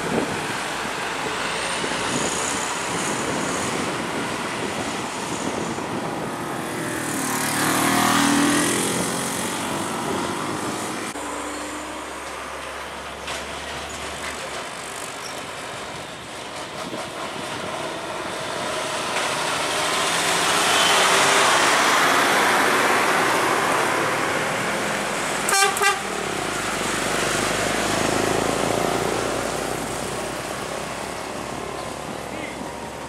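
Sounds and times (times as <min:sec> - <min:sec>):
trucks passing: 0:00.0 - 0:33.0
vehicle horn blasts: 0:25.5 - 0:26.1.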